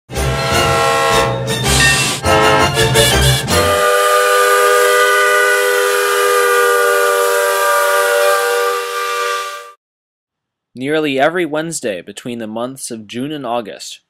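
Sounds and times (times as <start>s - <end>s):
steam locomotive whistle: 0.1s - 9.8s.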